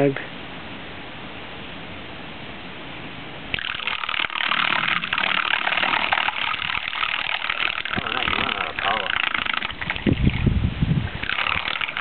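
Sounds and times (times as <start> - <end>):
faint hiss: 0.0 - 12.0
propeller churning water: 3.5 - 12.0.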